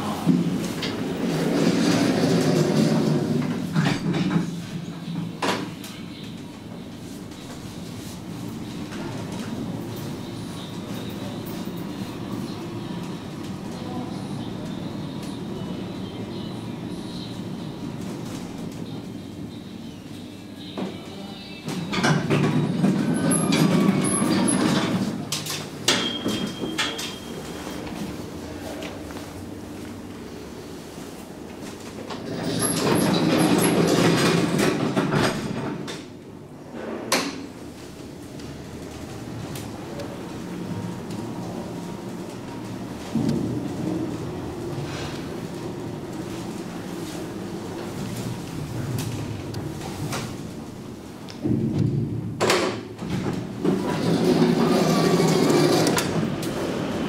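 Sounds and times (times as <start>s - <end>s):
elevator car rumbling in shaft: 0.0s - 5.4s, 32.0s - 36.9s, 51.4s - 57.0s
elevator doors rumbling open: 0.0s - 20.0s, 21.6s - 29.0s, 31.4s - 57.0s.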